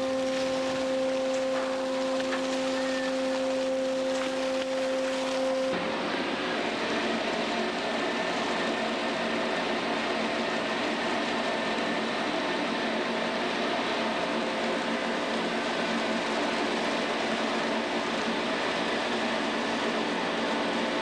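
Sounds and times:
boat engine drone: 0.0 - 8.5.

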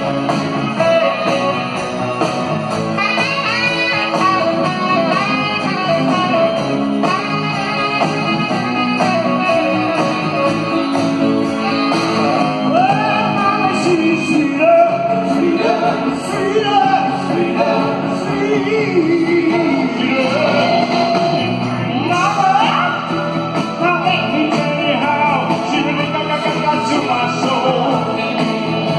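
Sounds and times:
drums: 0.0 - 28.9
electric guitars: 0.0 - 28.9
keyboards: 0.0 - 28.9
person singing: 11.6 - 28.9.

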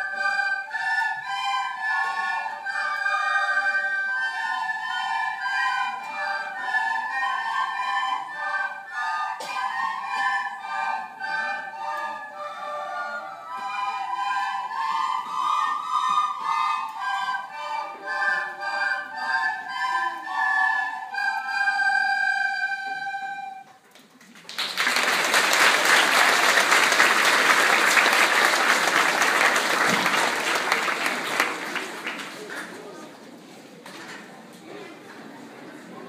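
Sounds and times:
children's choir singing: 0.0 - 23.5
audience applauding: 24.2 - 32.9.

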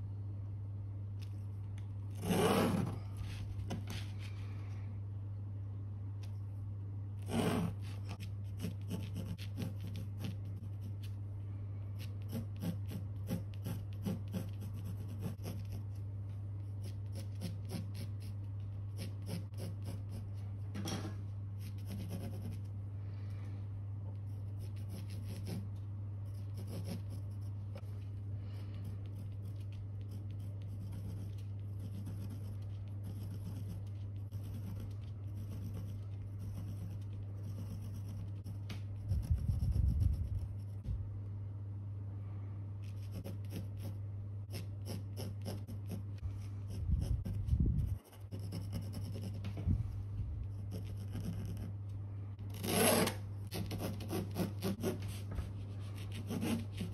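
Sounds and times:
steady low hum: 0.0 - 56.9
pencil scratching on canvas: 2.1 - 4.2, 7.2 - 11.2, 12.0 - 20.6, 21.6 - 22.7, 24.2 - 40.8, 42.8 - 49.6, 50.4 - 51.8, 52.5 - 56.9.

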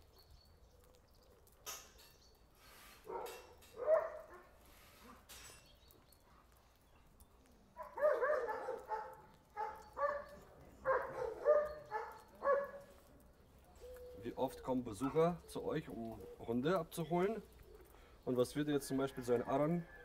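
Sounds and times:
dog barking: 3.0 - 5.3, 7.8 - 12.9.

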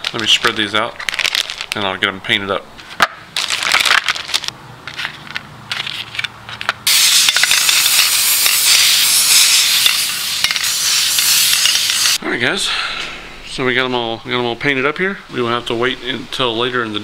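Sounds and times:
spray paint can hissing: 6.8 - 12.2.

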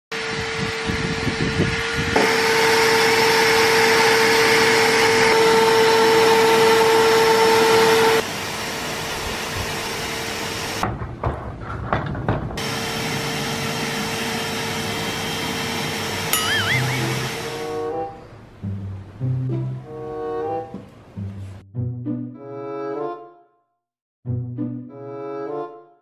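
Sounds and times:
vacuum cleaner motor whining: 0.2 - 8.9.

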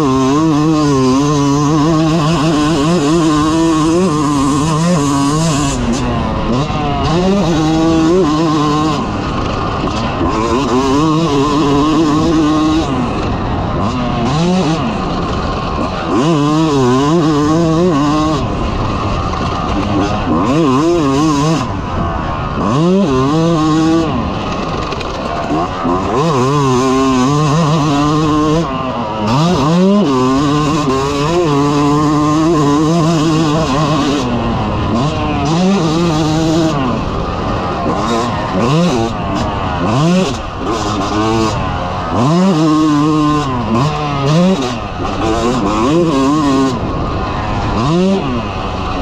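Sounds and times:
motorcycle engine revving: 0.0 - 49.0.

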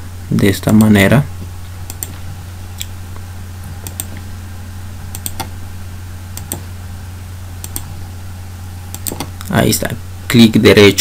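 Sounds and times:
steady low hum: 0.0 - 11.0
computer mouse clicking: 1.9 - 2.2, 3.7 - 4.2, 5.1 - 5.5, 6.4 - 6.7, 7.6 - 8.0, 8.9 - 9.3.

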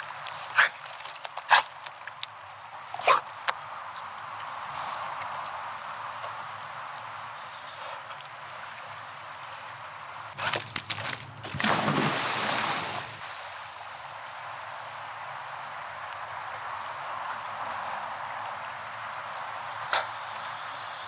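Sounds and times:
stream running: 0.0 - 16.4
dog splashing into water: 10.4 - 13.2.

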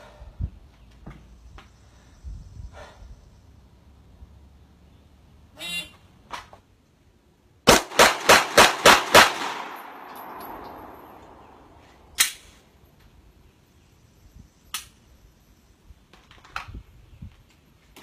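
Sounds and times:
pistol shots echoing: 7.6 - 12.3.

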